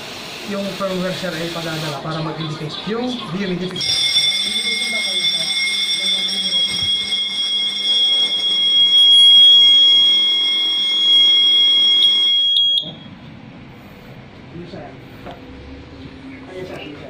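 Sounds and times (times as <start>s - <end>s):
fire alarm tone: 3.8s - 13.2s.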